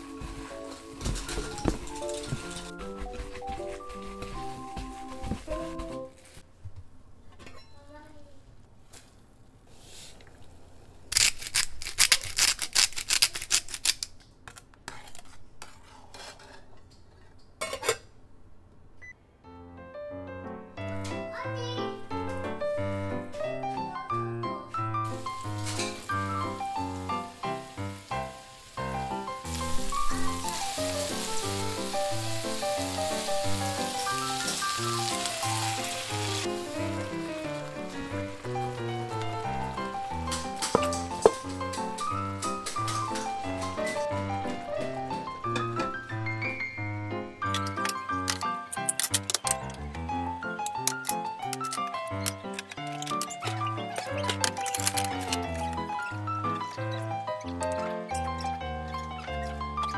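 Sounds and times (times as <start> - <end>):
background music: 0.0 - 6.2, 19.5 - 59.9
foil packet crinkling: 0.0 - 6.4, 11.0 - 15.2, 25.0 - 44.1, 47.6 - 49.9, 50.5 - 59.9
meatballs sizzling in a frying pan: 25.0 - 41.2.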